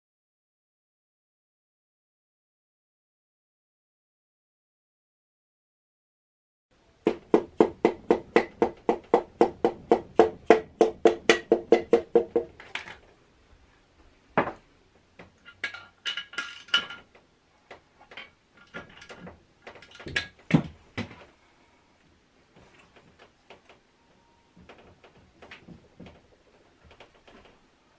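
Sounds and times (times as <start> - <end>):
tools clinking against metal: 15.5 - 17.0.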